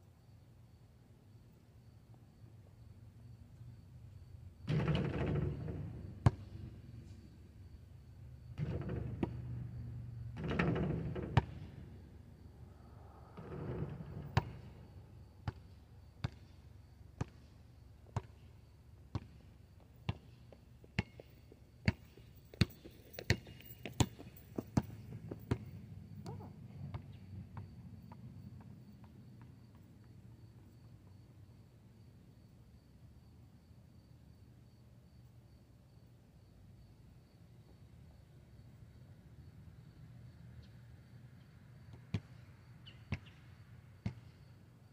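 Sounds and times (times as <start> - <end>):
basketball bouncing on asphalt: 4.2 - 12.4, 13.4 - 31.6, 41.9 - 44.6
basketball hitting hoop: 13.4 - 14.7.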